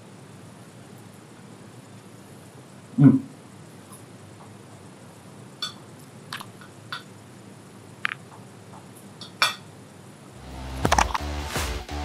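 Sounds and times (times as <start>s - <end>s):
music: 10.4s - 12.0s.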